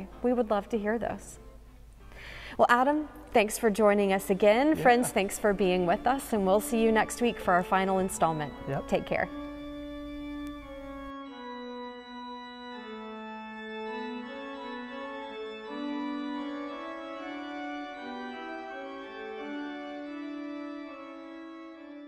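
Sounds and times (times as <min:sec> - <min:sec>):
organ playing slow chords: 0:03.6 - 0:22.0.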